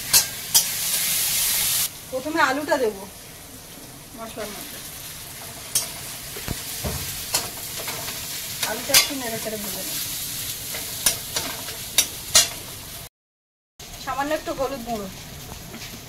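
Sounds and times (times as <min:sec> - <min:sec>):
metal spatula scraping a pan: 0:00.0 - 0:01.6, 0:05.4 - 0:12.6
potatoes sizzling in oil: 0:00.0 - 0:13.1, 0:13.8 - 0:16.0.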